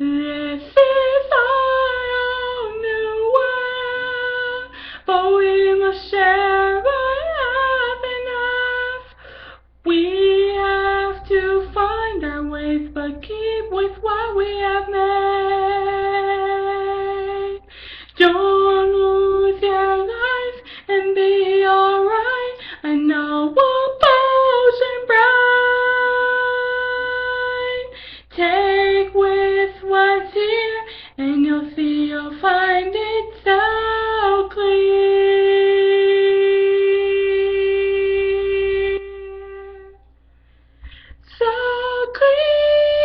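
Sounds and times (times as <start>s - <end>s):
woman singing unaccompanied: 0.0s - 9.2s, 9.8s - 40.0s, 41.2s - 43.0s
breaths: 4.7s - 5.1s, 9.1s - 9.8s, 17.6s - 18.2s, 20.6s - 20.9s, 22.6s - 22.8s, 27.9s - 28.3s, 30.9s - 31.2s, 40.2s - 41.3s.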